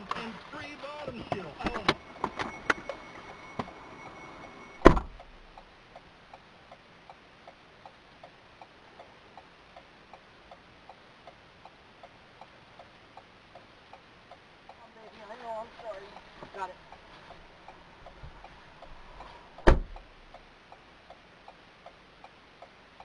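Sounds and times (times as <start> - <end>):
high electronic tone: 1.1 - 5.6
loud thump: 4.8 - 5.2, 19.6 - 20.0.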